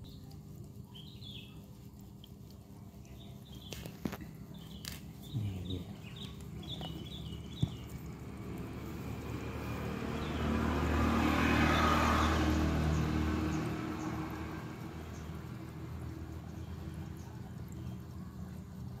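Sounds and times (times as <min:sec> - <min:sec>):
motor vehicle passing by: 0:03.1 - 0:19.0
sharp tap: 0:07.6 - 0:07.9.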